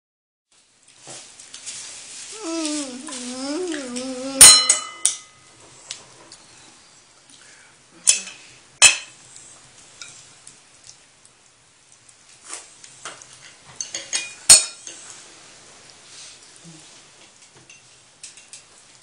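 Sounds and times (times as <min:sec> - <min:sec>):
wavering voice-like sound: 0:02.3 - 0:04.5
plate clinking: 0:04.3 - 0:05.4.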